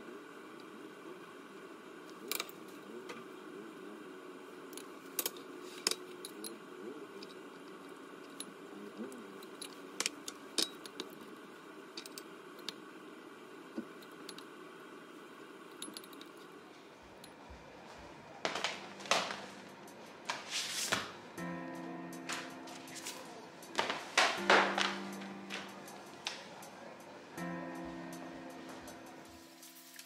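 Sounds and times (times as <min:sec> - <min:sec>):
scraping and rustling: 0:18.0 - 0:21.3.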